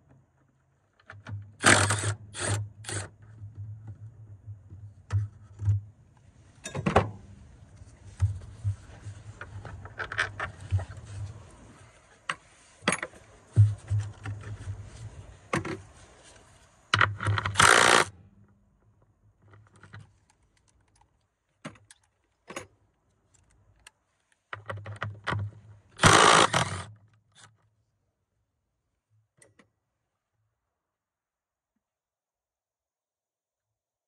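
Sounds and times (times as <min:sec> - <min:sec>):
clicks and rattles of battery hardware: 0:00.9 - 0:05.9, 0:09.3 - 0:11.0, 0:16.9 - 0:18.2, 0:19.4 - 0:27.7.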